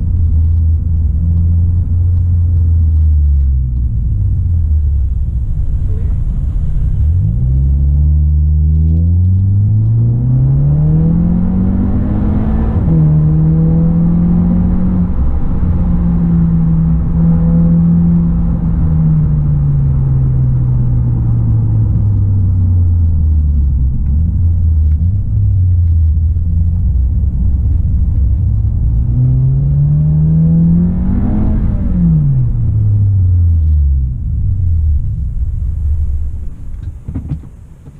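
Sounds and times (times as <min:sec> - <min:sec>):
car engine revving: 0:00.0 - 0:37.9.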